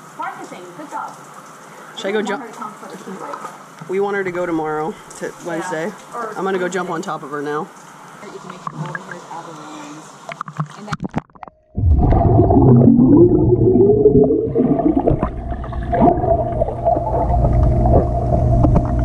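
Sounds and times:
water splashing: 0:08.1 - 0:19.0
underwater bubbling: 0:10.2 - 0:19.0
warbling tones: 0:11.0 - 0:19.0
underwater low rumble and hum: 0:11.3 - 0:19.0.

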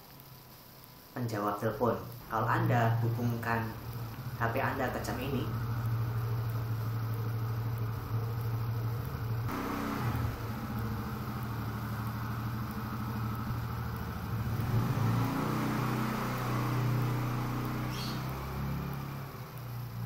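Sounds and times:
engine running with low hum: 0:02.1 - 0:20.0.

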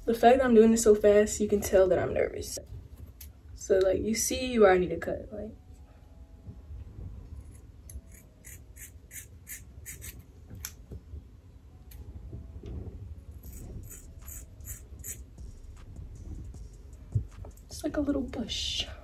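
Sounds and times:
scissors snipping hair: 0:07.9 - 0:10.8, 0:13.5 - 0:15.2.

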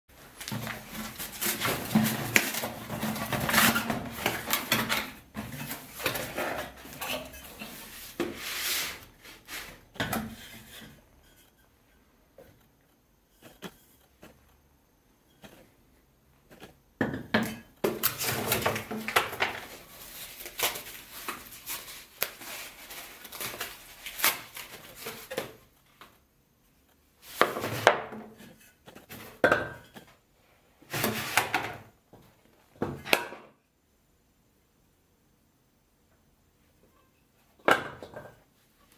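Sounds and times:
cardboard and packing rustling: 0:00.1 - 0:11.1, 0:17.8 - 0:26.2.

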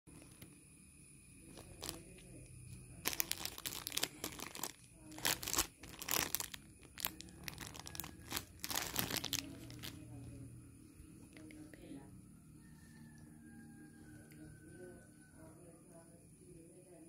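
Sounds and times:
plastic sweets bag crinkling: 0:01.4 - 0:10.2.

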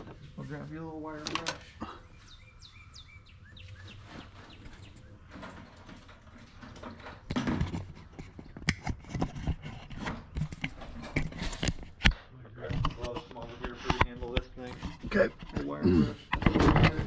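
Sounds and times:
handling knocks and clatter: 0:03.6 - 0:15.7, 0:16.3 - 0:17.0.

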